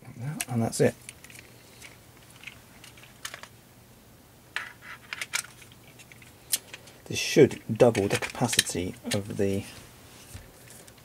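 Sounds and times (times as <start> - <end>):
plastic parts clicking: 0.4 - 3.5, 4.6 - 9.4.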